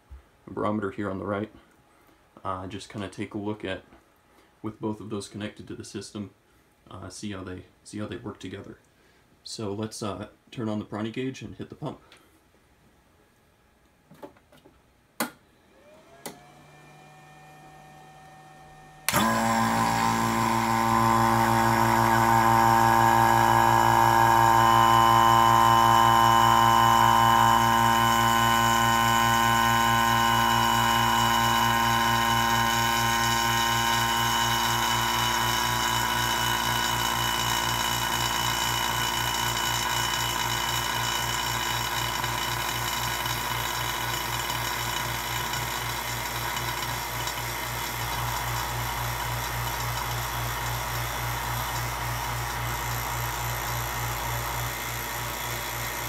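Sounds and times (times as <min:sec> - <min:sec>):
vacuum pump humming: 0:15.2 - 0:56.0.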